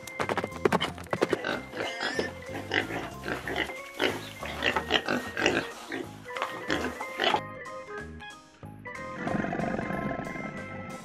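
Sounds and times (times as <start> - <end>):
background music: 0.0 - 11.0
piglets grunting and squealing: 1.4 - 7.4.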